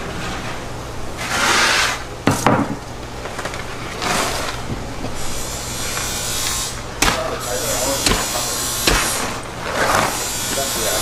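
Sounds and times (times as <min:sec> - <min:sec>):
fish scraping on table: 0:01.2 - 0:02.1.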